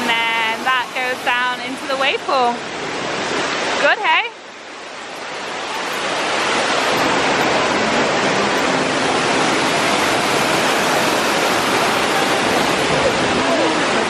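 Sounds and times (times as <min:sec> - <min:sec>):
waterfall pouring into pool: 0:08.5 - 0:14.0.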